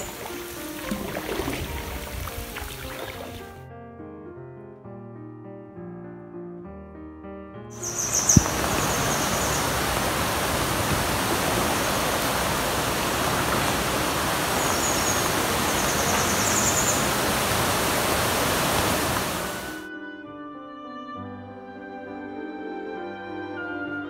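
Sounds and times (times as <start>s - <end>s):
fast-flowing river water: 0.0s - 3.5s, 7.8s - 19.8s
waterfall rushing: 0.0s - 3.5s, 7.8s - 19.8s.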